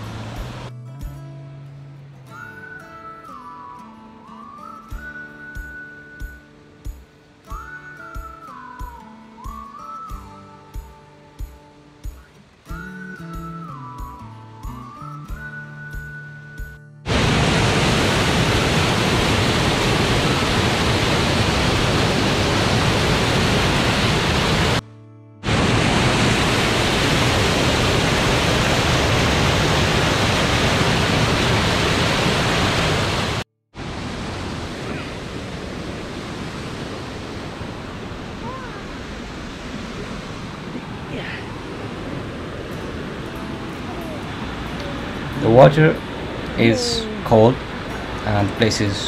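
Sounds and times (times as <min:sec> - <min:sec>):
waterfall rushing: 0:00.0 - 0:00.7, 0:17.1 - 0:24.8, 0:25.4 - 0:49.0.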